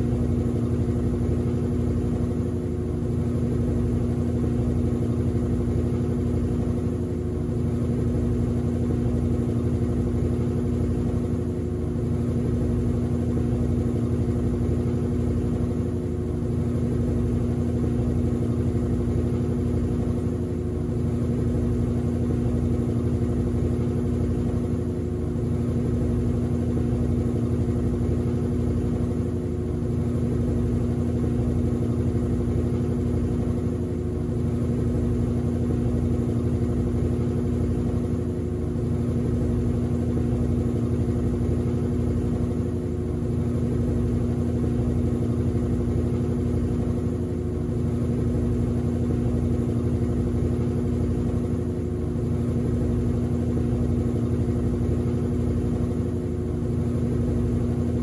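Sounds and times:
washing machine spinning: 0:00.0 - 0:58.0.

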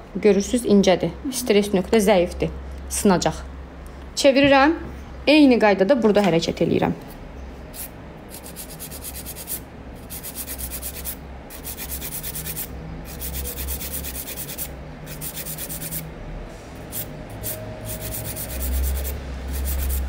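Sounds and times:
nail file rasping: 0:07.8 - 0:16.0, 0:16.9 - 0:20.0.

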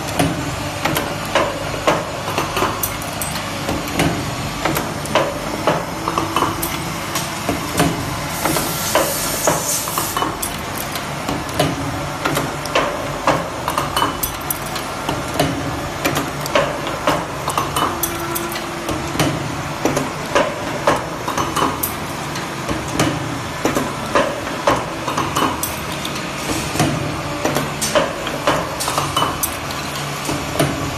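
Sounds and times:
metallic clanks and clicks: 0:10.0 - 0:26.3.

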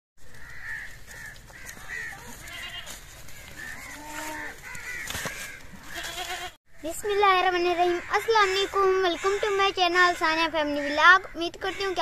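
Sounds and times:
fowl calls: 0:00.2 - 0:06.9
low animal call: 0:03.4 - 0:06.5.

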